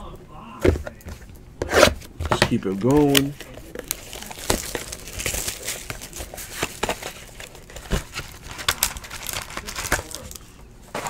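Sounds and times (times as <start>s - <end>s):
cards and foil wrapper rustling: 2.3s - 11.0s.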